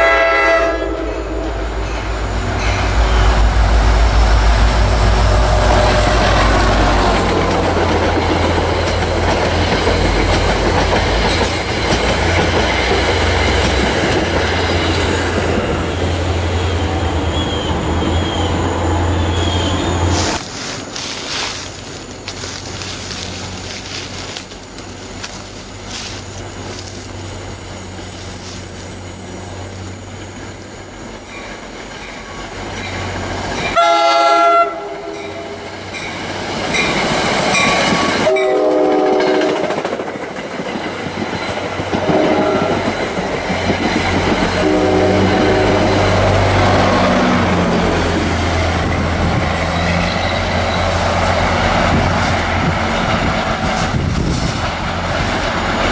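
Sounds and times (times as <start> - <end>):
train horn blasts: 0.0 - 1.8, 4.7 - 7.0, 33.7 - 35.8, 37.6 - 39.7, 42.0 - 42.9, 44.4 - 46.7
train wheels rumbling on rails: 0.0 - 55.9.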